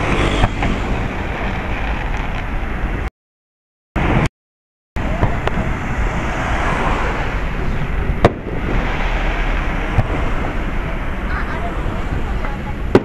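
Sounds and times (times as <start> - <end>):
firework bang: 0.0 - 2.7, 8.0 - 10.8, 12.4 - 13.0
fireworks crackling and rumbling: 0.0 - 3.1, 4.0 - 4.3, 5.0 - 13.0.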